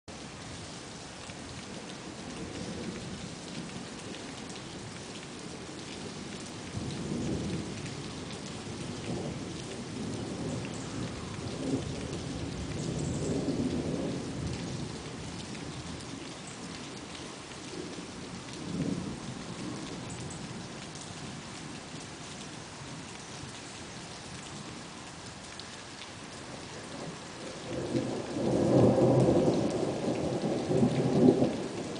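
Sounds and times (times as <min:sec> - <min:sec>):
rain pattering: 0:00.1 - 0:31.9
thunder rumbling: 0:26.9 - 0:31.9.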